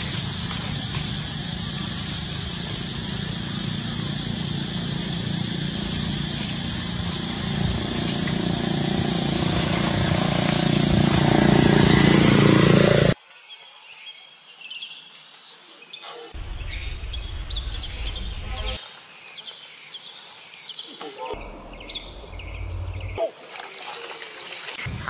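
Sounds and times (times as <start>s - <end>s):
engine running steadily: 0.0s - 13.2s.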